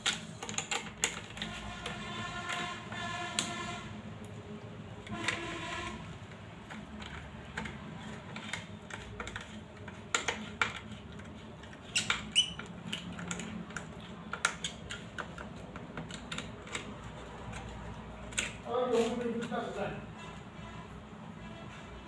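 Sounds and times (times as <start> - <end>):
screwdriver clicking and scraping: 0.0 - 2.7, 5.0 - 19.7.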